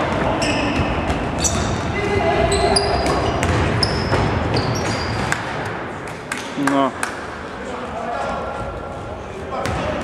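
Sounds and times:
sneakers squeaking on court floor: 0.0s - 5.6s
basketball bouncing: 2.8s - 5.6s.

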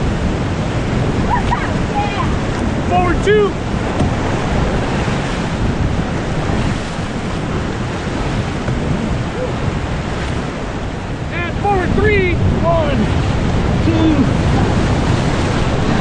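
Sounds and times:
whitewater rapids rushing: 0.0s - 16.0s.

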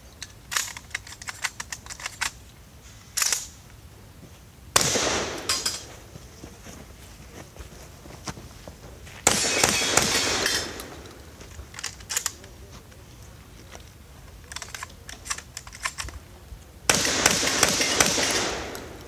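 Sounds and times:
gun action clicks: 0.2s - 2.4s, 3.2s - 3.6s, 9.4s - 12.5s, 14.5s - 16.2s
shotgun blast: 4.8s - 5.7s, 9.2s - 11.0s, 16.9s - 19.0s.

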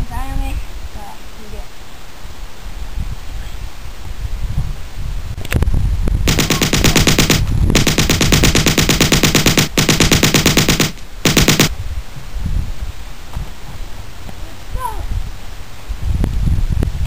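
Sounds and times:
machine gun fire: 6.3s - 11.7s.

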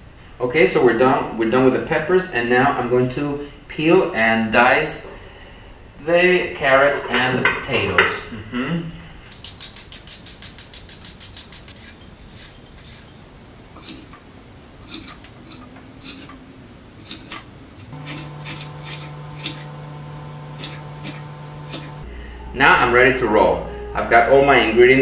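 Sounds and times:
faint steady hum: 12.6s - 25.0s
peeler scraping carrot: 14.8s - 16.4s, 17.0s - 22.0s
knife slicing vegetables: 17.0s - 19.8s.

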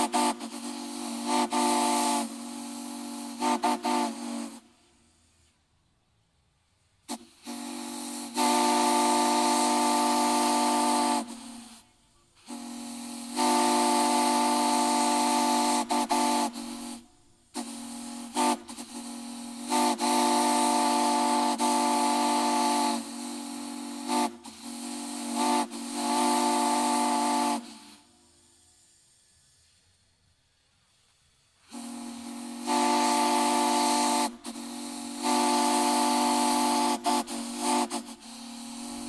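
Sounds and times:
steam whistle chord: 0.0s - 5.0s, 7.4s - 11.8s, 12.4s - 29.8s, 31.6s - 39.0s
steam hissing: 0.0s - 39.0s.

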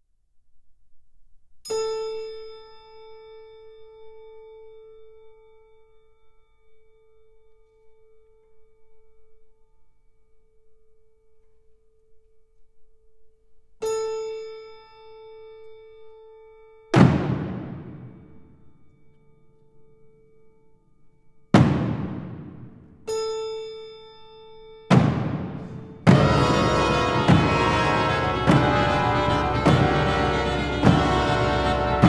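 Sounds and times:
deep timpani-like drum hits: 17.0s - 18.3s, 21.6s - 22.8s, 24.9s - 32.0s.

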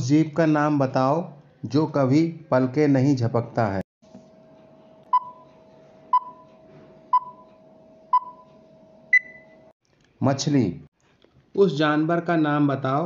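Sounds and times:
short timer beeps: 5.1s - 5.5s, 6.1s - 6.5s, 7.1s - 9.7s
higher-pitched beep: 6.1s - 6.5s, 8.1s - 8.5s, 9.1s - 9.6s.

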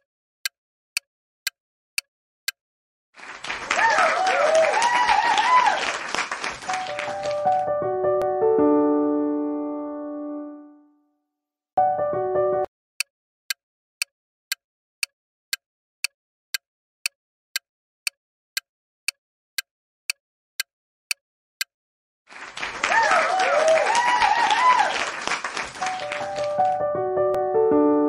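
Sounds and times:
crowd cheering and applauding: 3.2s - 7.7s, 22.3s - 26.8s
piano music: 6.6s - 11.0s, 11.8s - 12.7s, 25.6s - 28.0s
countdown clock ticking: 13.0s - 21.7s.

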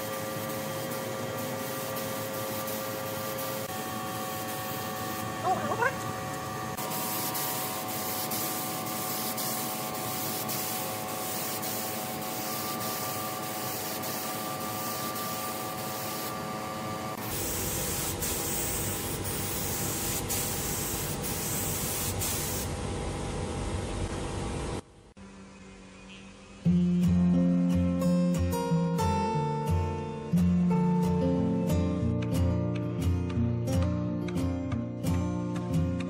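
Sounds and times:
spray gun hissing: 0.0s - 5.9s, 6.7s - 16.4s, 17.2s - 22.7s.

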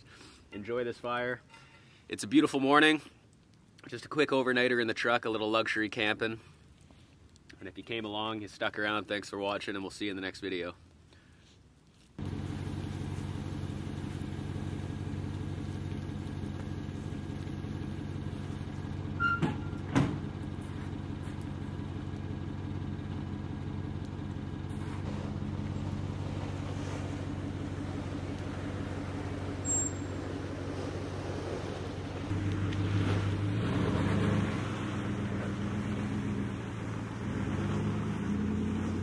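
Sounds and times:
pickup engine idling: 12.2s - 33.4s.

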